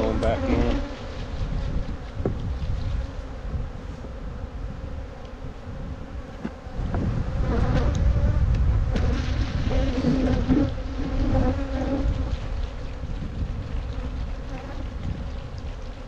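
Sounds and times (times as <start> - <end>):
honeybees buzzing: 0.0 - 16.0.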